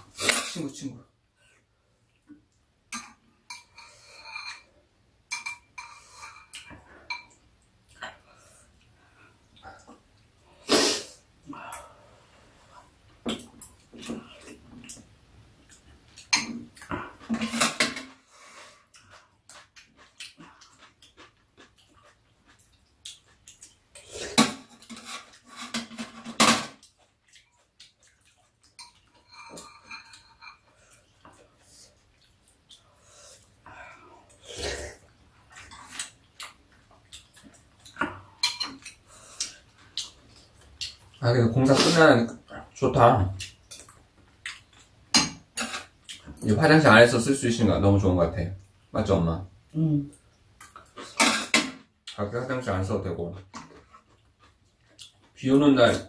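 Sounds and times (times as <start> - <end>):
utensils clinking against bowls: 28.8 - 30.7.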